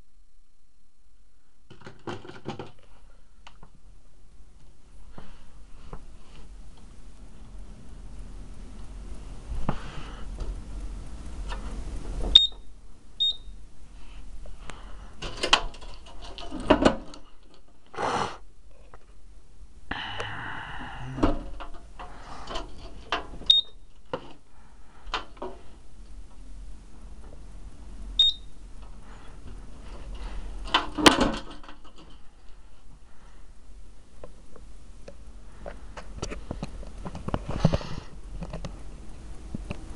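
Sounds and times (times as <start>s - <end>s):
high alarm panel beeps: 12.3s - 13.6s, 23.5s - 23.8s, 28.2s - 28.5s.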